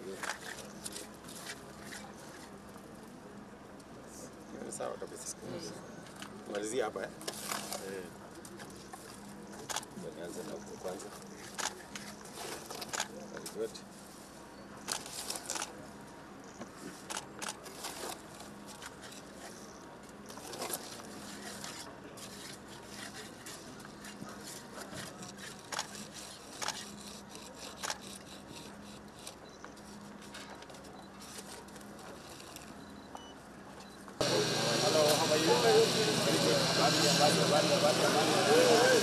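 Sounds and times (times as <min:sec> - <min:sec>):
trowel scraping mortar: 0:20.4 - 0:30.4.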